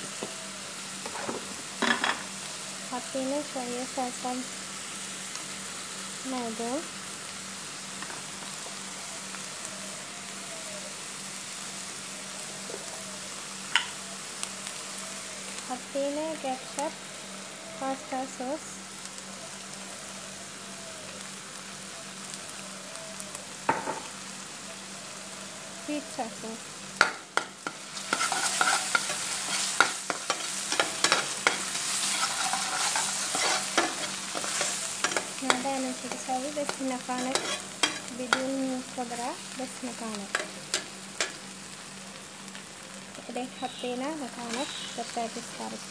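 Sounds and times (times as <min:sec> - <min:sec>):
onions sizzling in a pan: 0:00.0 - 0:45.9
metal spoon scraping a pan: 0:27.6 - 0:38.5, 0:40.3 - 0:41.4, 0:44.4 - 0:45.0.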